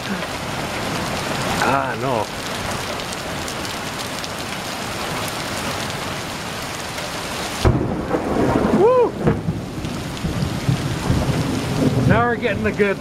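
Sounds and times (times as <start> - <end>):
heavy rain pouring: 0.0 - 13.0
thunder clap and rumble: 7.6 - 13.0.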